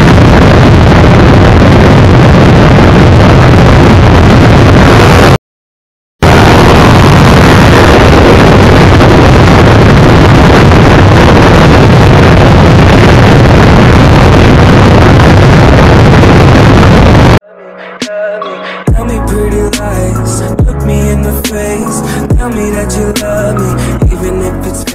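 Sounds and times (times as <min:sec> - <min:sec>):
wind noise on microphone: 0:00.0 - 0:05.4, 0:06.2 - 0:17.4.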